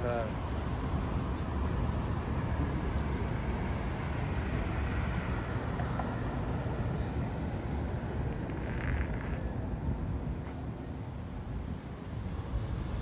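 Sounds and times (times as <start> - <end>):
city background rumble: 0.0 - 13.0.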